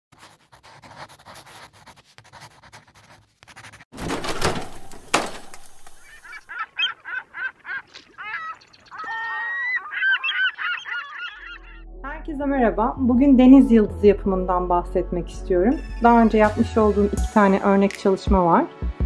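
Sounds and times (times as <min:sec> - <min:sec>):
chalk writing strokes: 0:00.2 - 0:03.9
honking bird calls: 0:05.9 - 0:11.8.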